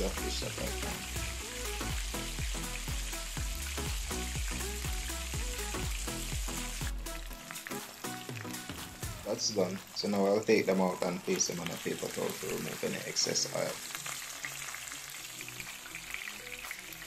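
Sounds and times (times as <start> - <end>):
music with steady beat: 0.0 - 9.4
hot oil sizzling and bubbling: 0.0 - 17.0.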